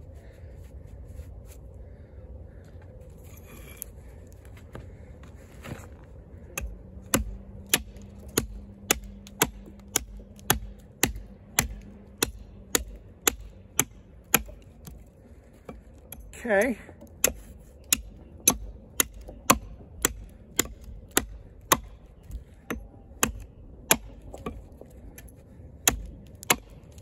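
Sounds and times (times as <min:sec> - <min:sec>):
axe chopping wood: 0:06.6 - 0:24.8, 0:25.8 - 0:27.0.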